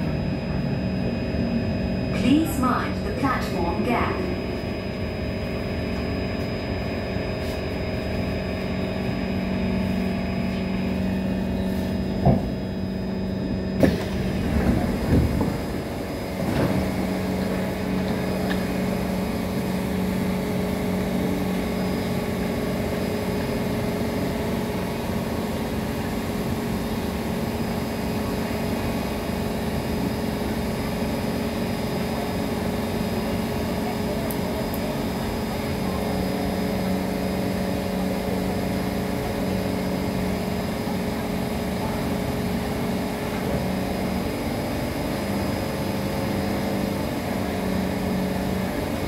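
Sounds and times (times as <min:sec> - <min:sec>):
train motor hum: 0:00.0 - 0:49.0
train knocks: 0:12.1 - 0:12.6, 0:13.8 - 0:18.9.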